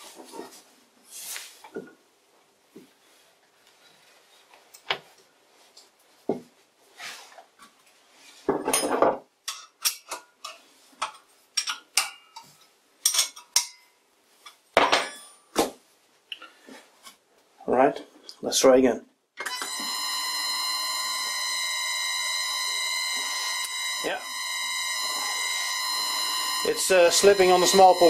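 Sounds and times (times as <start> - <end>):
faint steady hum: 19.6 - 28.0.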